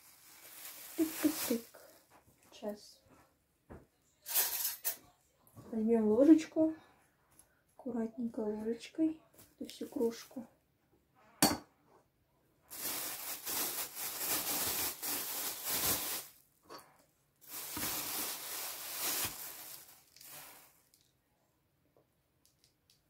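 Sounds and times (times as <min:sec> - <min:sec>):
plastic bag rustling and crinkling: 0:00.0 - 0:02.7, 0:12.6 - 0:16.5, 0:17.4 - 0:21.1.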